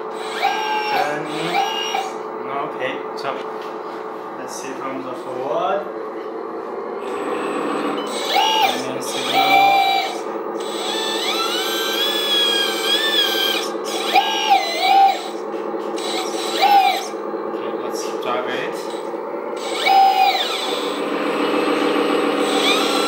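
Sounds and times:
electric motor and gears whining: 0.0s - 23.0s
steady low drone: 15.4s - 23.0s.

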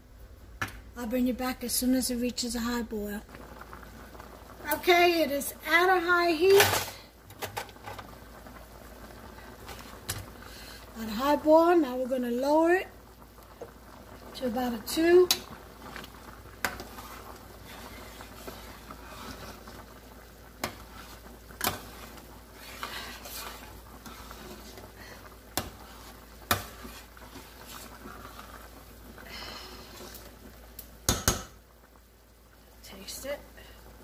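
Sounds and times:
boiling stew bubbling: 0.0s - 34.0s.

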